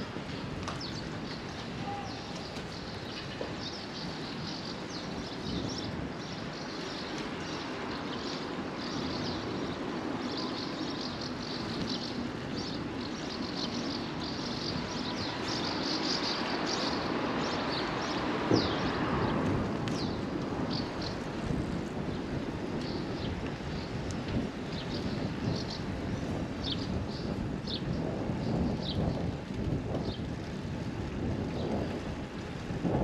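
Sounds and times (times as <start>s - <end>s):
wind: 0.0s - 33.0s.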